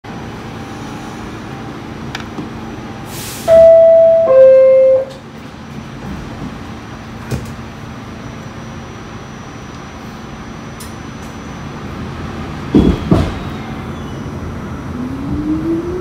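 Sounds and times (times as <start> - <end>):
train hum: 0.0 - 16.0
air hiss: 3.1 - 3.5
two-tone door chime: 3.5 - 5.2.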